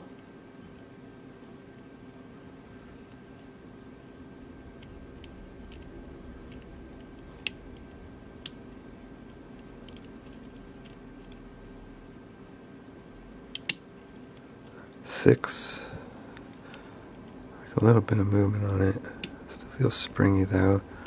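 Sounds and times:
lock pick clicking: 13.5s - 13.8s.

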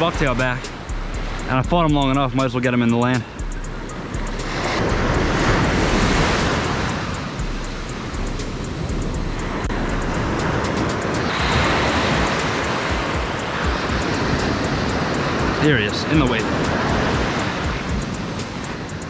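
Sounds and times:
ocean surf breaking: 0.0s - 19.0s
wave crashing: 0.0s - 19.0s.

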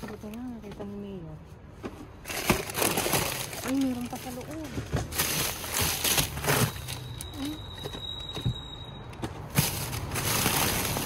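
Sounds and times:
plastic bags rustling and crinkling: 2.0s - 8.0s, 9.4s - 11.0s.

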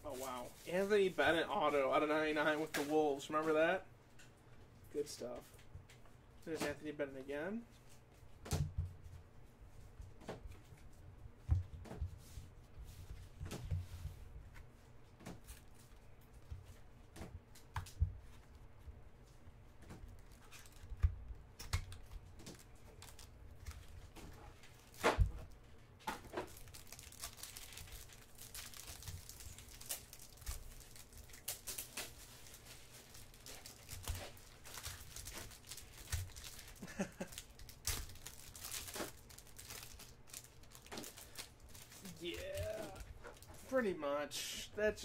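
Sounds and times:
plastic wrap tearing and crinkling: 20.1s - 21.0s, 21.6s - 25.3s, 26.2s - 43.8s.

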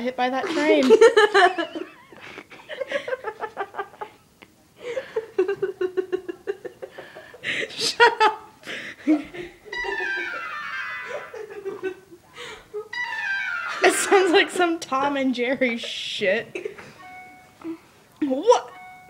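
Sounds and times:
young woman laughing: 0.5s - 4.2s, 4.8s - 13.0s
phone ringtone: 9.7s - 11.5s, 12.9s - 14.6s, 17.0s - 17.8s, 18.7s - 19.0s.

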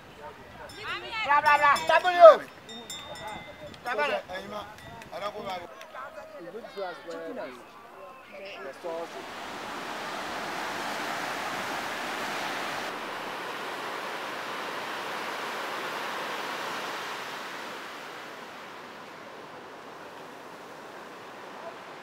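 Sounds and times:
ocean surf breaking on beach: 8.6s - 22.0s.

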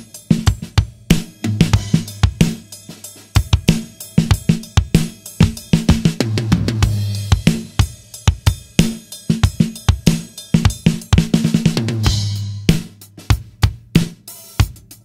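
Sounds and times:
bright cymbal wash: 0.0s - 6.1s
drum kit groove: 0.0s - 15.0s.

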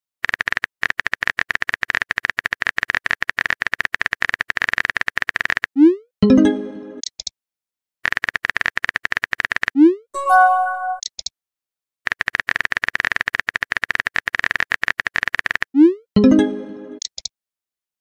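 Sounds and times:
message pop chime: 6.2s - 7.0s, 10.2s - 11.1s, 16.2s - 17.0s
keyboard typing clicks: 17.0s - 17.3s.

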